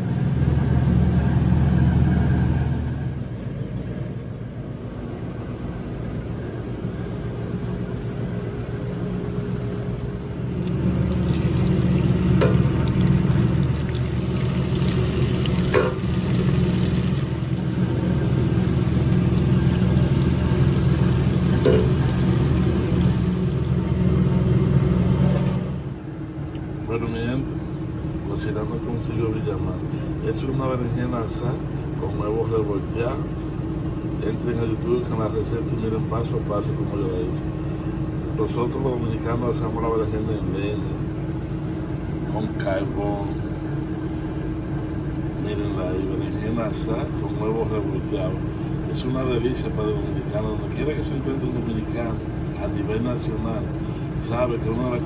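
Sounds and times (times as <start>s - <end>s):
steady low hum: 0.0s - 55.0s
vegetables sizzling in a skillet: 10.8s - 23.6s.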